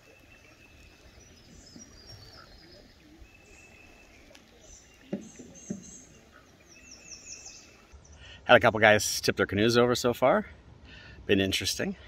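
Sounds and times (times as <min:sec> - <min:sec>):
faint birdsong: 0:00.0 - 0:08.7.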